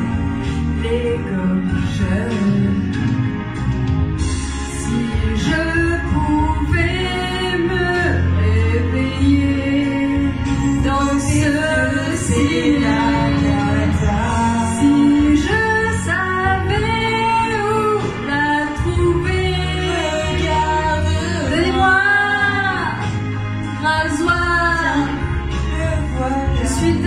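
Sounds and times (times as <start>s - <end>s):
backing music track: 0.0s - 27.0s
woman and man singing: 4.8s - 23.1s, 23.8s - 27.0s.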